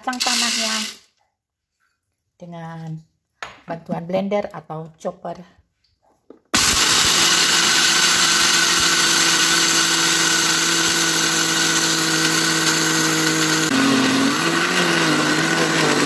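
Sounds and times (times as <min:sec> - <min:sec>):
blender motor grinding: 0:00.1 - 0:01.0, 0:06.6 - 0:16.0.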